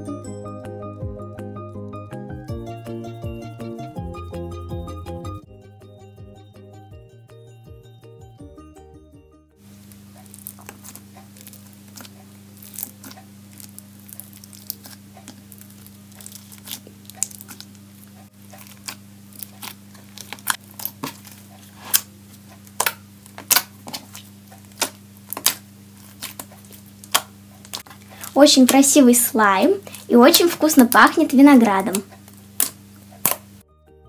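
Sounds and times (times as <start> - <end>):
steady low hum: 9.6 - 33.7
slime crunching and popping: 9.7 - 29.0, 29.8 - 33.6.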